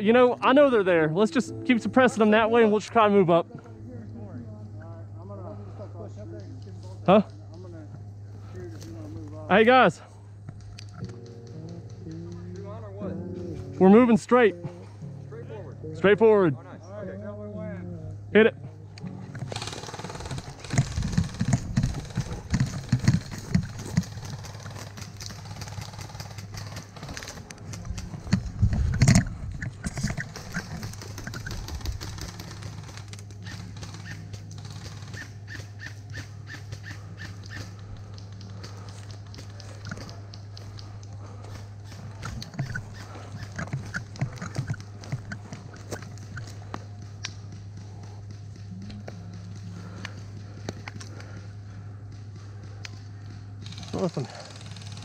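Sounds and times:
steady low hum: 0.0s - 55.0s
carried gear knocking: 19.4s - 32.9s, 37.8s - 51.6s
footsteps running on pine needles: 19.5s - 52.8s.

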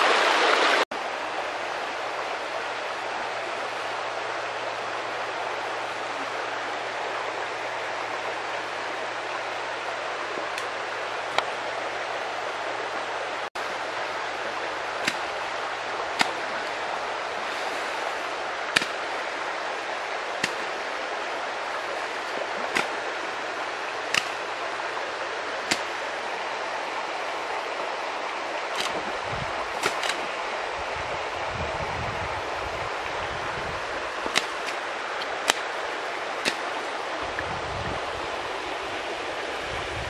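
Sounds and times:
fast-flowing stream rushing: 0.0s - 40.0s
sharp clicks: 29.8s - 30.2s.

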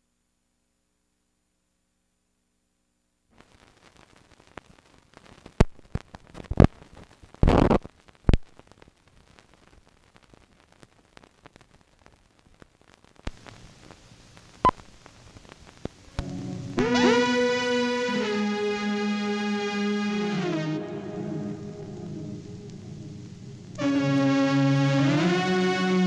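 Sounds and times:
film soundtrack hiss and crackle: 0.0s - 26.0s
clicks and loud pops: 4.6s - 16.4s.

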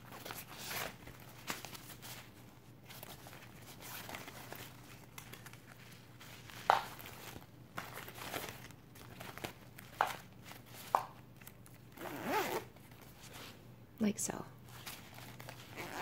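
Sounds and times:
paper tag crinkling: 0.0s - 12.0s
fabric rustling and scuffing: 12.0s - 13.6s.

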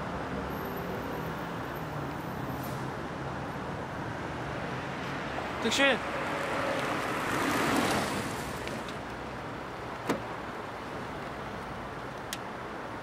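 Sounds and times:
car road and engine noise: 0.0s - 13.0s
car door click: 10.0s - 10.3s.

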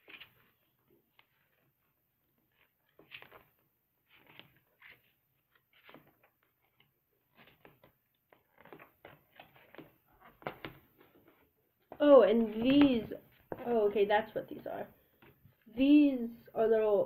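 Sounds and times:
cardboard and paper rustling: 2.5s - 13.7s.

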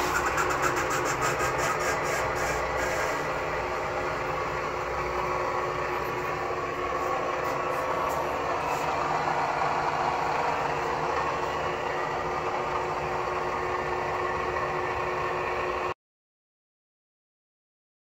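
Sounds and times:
lathe motor humming: 0.0s - 15.9s.

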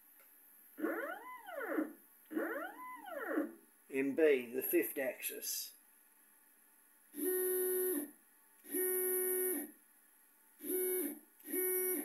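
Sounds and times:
stepper motor whine: 10.6s - 12.0s.

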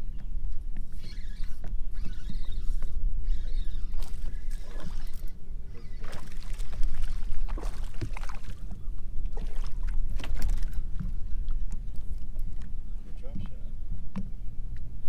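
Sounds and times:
fishing reel clicking: 1.0s - 5.4s.

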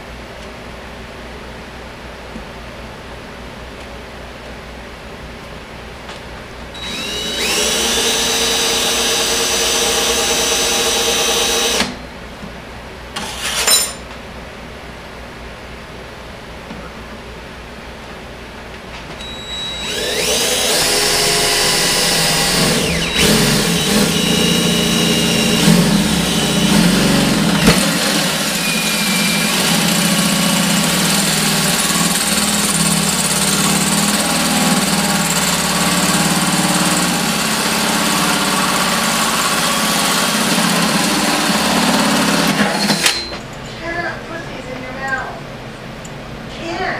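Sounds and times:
drill motor running under load: 6.8s - 12.0s, 19.2s - 43.3s
metal squealing: 19.2s - 27.3s.

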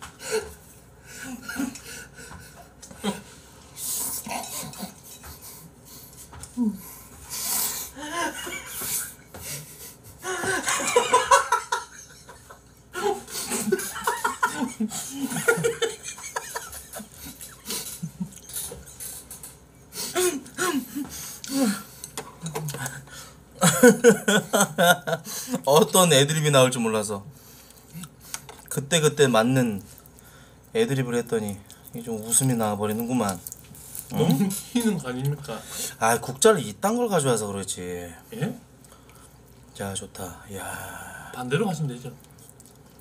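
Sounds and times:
man laughing hard: 10.2s - 18.4s, 23.6s - 25.2s.

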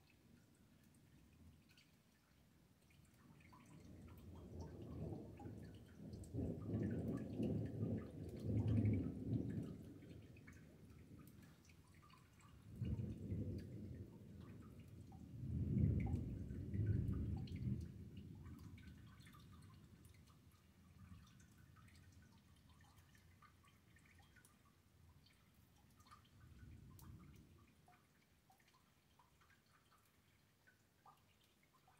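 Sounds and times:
rain dripping: 0.0s - 31.9s.

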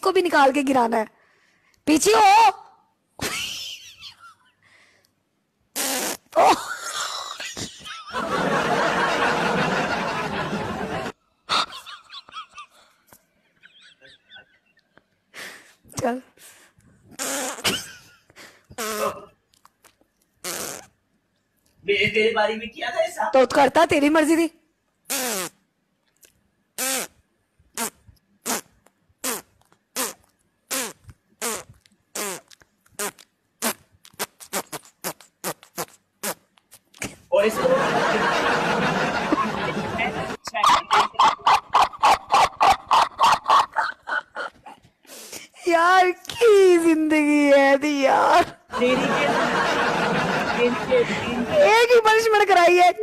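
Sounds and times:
fart noises: 5.7s - 6.5s, 17.1s - 17.9s, 18.8s - 19.4s, 20.4s - 21.0s, 25.1s - 25.6s, 26.8s - 37.2s
woman laughing muffled: 39.3s - 44.8s.

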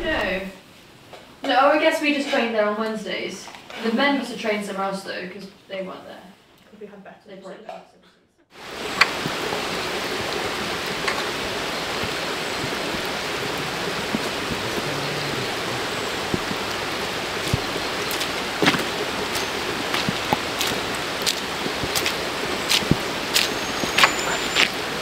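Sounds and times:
steady rain hiss: 0.0s - 6.9s, 8.5s - 25.0s.

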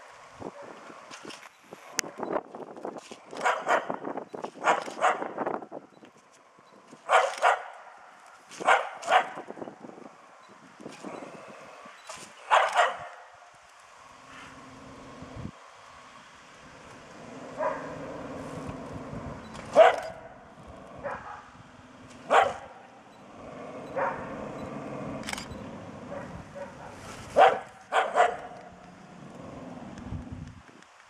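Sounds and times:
small dog barking: 3.4s - 4.0s, 4.6s - 5.3s, 7.1s - 7.9s, 8.6s - 9.5s, 12.5s - 13.3s, 17.6s - 18.0s, 19.7s - 20.3s, 21.0s - 21.5s, 22.3s - 22.9s, 23.9s - 24.3s, 26.1s - 28.6s.

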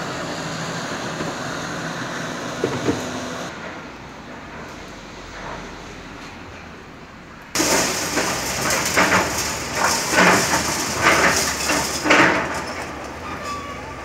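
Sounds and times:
excavator engine running: 0.0s - 14.0s
street sound: 0.0s - 14.0s
concrete rubble crashing and scraping: 7.6s - 14.0s.

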